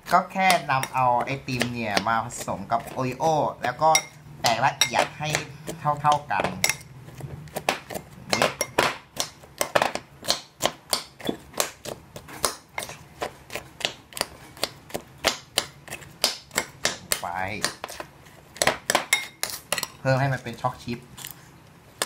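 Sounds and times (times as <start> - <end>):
metal spoon clinking on ceramic bowl: 19.1 - 20.0.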